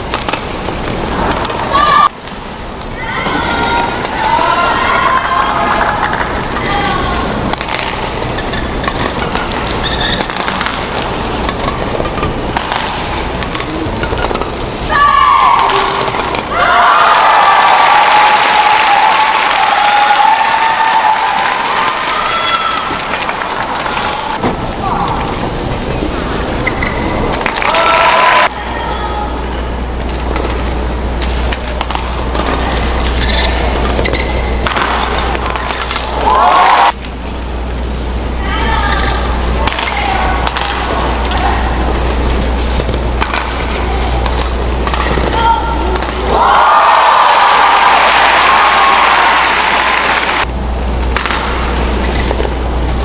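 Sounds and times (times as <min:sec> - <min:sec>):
hall and crowd hum: 0:00.0 - 0:53.0
shoes squeaking on court: 0:08.2 - 0:10.6, 0:25.9 - 0:27.3, 0:32.6 - 0:34.6
racket hitting shuttlecock: 0:08.8 - 0:14.6, 0:31.2 - 0:36.2, 0:42.8 - 0:46.4, 0:51.1 - 0:52.5
shoe squeaks on court: 0:09.8 - 0:10.3, 0:33.2 - 0:34.6.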